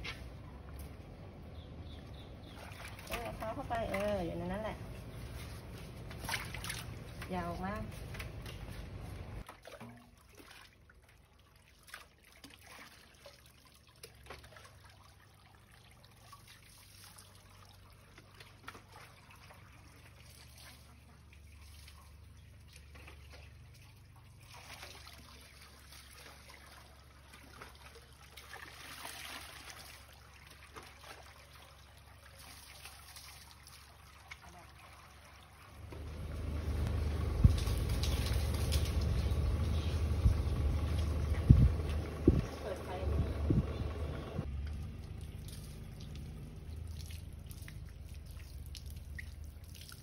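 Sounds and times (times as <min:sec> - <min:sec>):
low steady hum: 0:00.0 - 0:10.2, 0:33.9 - 0:50.0
water trickling into metal basin: 0:01.9 - 0:08.6, 0:09.4 - 0:43.0, 0:44.6 - 0:50.0.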